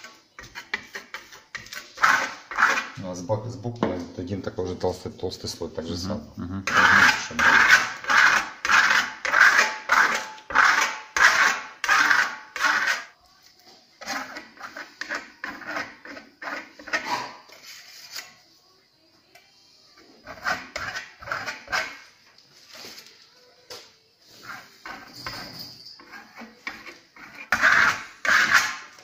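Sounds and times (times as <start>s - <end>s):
spatula scraping across wall: 0.0s - 3.0s, 6.7s - 13.1s, 14.0s - 18.3s, 20.2s - 22.1s, 24.2s - 29.0s.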